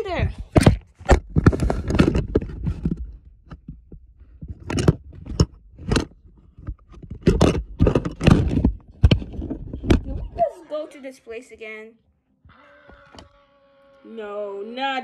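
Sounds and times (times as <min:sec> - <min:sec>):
phone microphone handling noise: 0:00.2 - 0:10.5.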